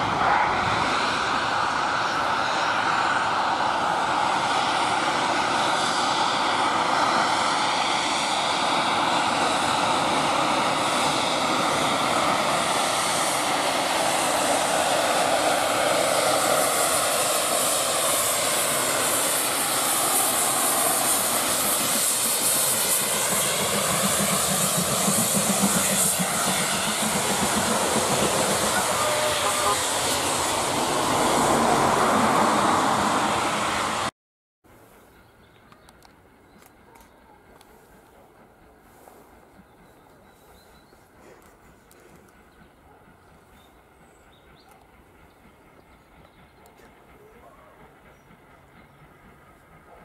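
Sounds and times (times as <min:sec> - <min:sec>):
steady gliding drone: 0:00.0 - 0:34.1
steam locomotive passing: 0:00.0 - 0:34.1, 0:34.7 - 0:50.0.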